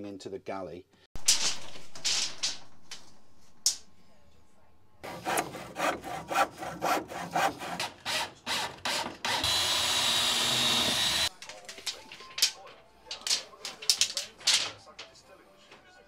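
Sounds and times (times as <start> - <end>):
handsaw cutting wood: 5.0 - 11.3.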